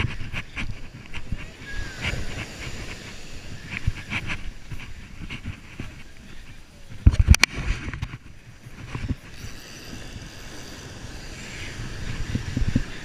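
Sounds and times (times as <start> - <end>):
surf washing on beach: 0.0 - 13.0
wind rumbling on microphone: 0.0 - 13.0
fishing reel being cranked: 9.1 - 13.0.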